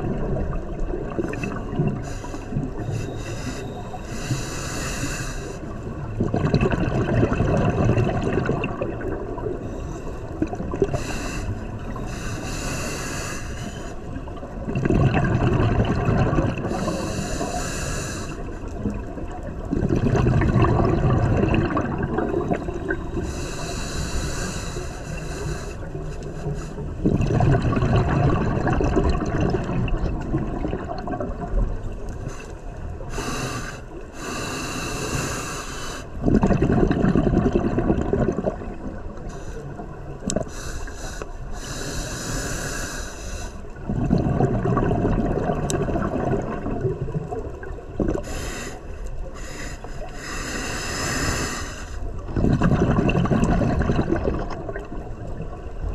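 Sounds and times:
regulator hissing inhale: 1.3s - 5.8s, 9.6s - 10.3s, 10.9s - 14.1s, 16.7s - 18.7s, 23.1s - 27.0s, 32.2s - 36.2s, 39.2s - 43.8s, 48.2s - 52.2s
exhaust bubbles rushing: 6.1s - 9.5s, 14.6s - 16.7s, 19.6s - 23.0s, 27.0s - 31.7s, 36.2s - 39.0s, 43.8s - 48.2s, 52.3s - 55.5s.

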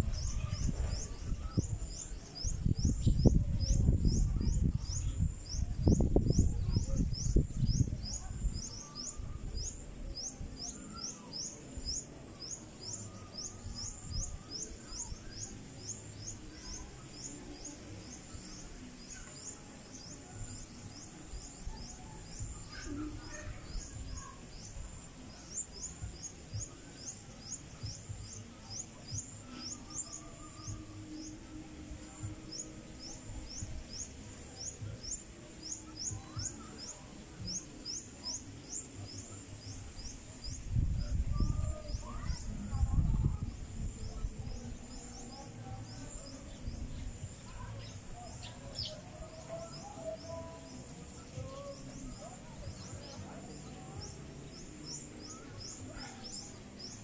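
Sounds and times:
low rumble on microphone: 0.0s - 10.6s, 39.0s - 48.4s.

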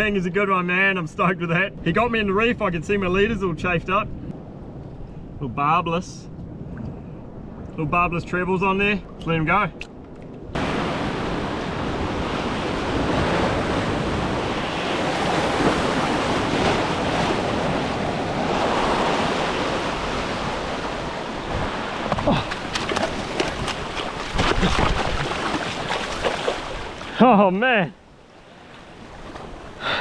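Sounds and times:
knocks and scrapes on rocks: 22.0s - 26.6s.

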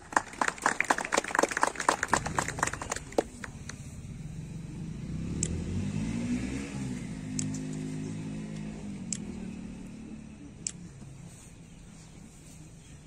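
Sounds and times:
crowd clapping: 0.0s - 3.8s
low engine hum: 0.0s - 13.0s.

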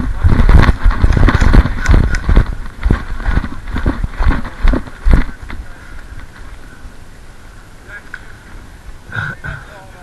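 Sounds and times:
running footsteps in snow: 0.0s - 5.8s.

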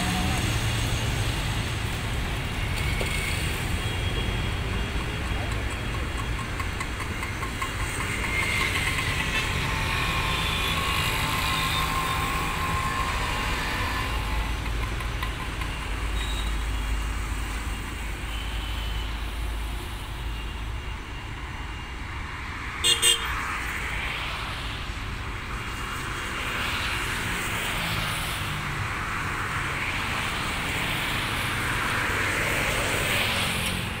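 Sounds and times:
distant turboprop aircraft: 0.0s - 18.6s
road traffic rumble: 0.0s - 34.0s.

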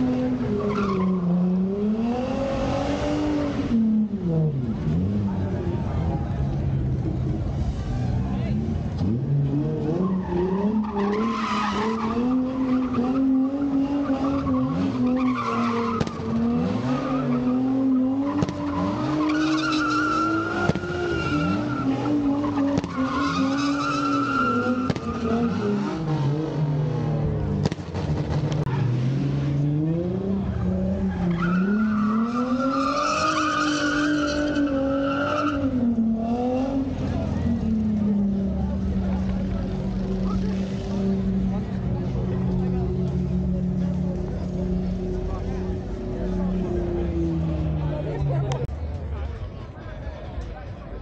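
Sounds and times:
car engine at high revs: 0.0s - 48.7s
tyres squealing on pavement: 0.5s - 1.3s, 9.9s - 26.4s, 30.9s - 36.8s.

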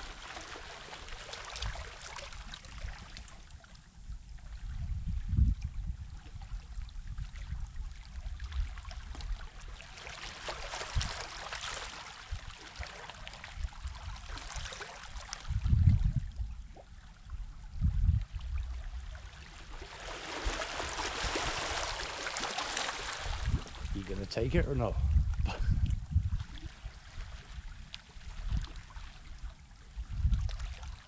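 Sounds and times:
sea waves washing ashore: 0.0s - 2.8s, 19.2s - 25.0s.

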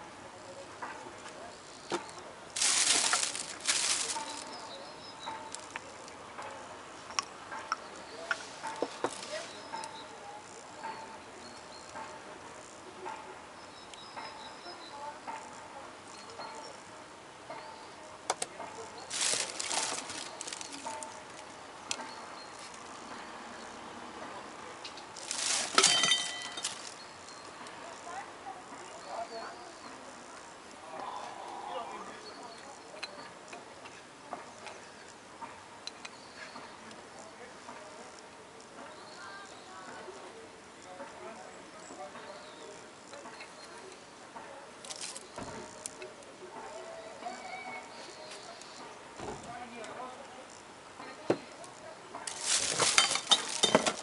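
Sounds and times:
plastic bag rustling: 2.5s - 4.7s, 19.1s - 21.4s, 25.2s - 27.0s, 52.3s - 54.0s
resin cylinder clinking on hard surface: 25.8s - 27.0s.

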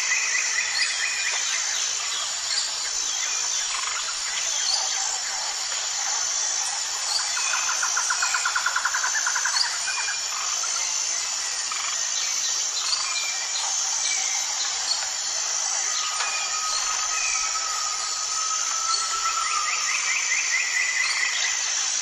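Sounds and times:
high-pitched insect drone: 0.0s - 22.0s
held whistle-like tone: 16.0s - 20.3s.

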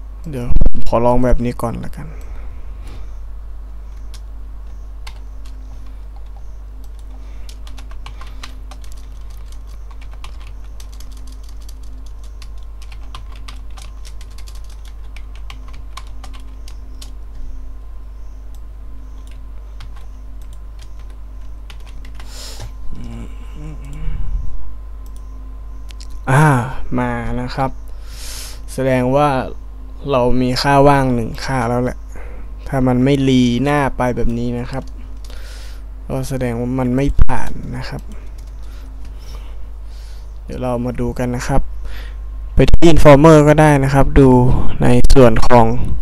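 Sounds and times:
steady low hum: 0.0s - 46.0s
typing on computer keyboard: 6.2s - 17.1s, 19.2s - 22.3s.

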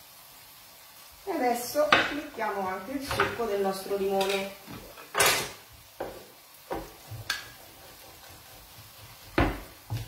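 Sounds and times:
kitchen items knocking on counter: 9.3s - 10.0s.

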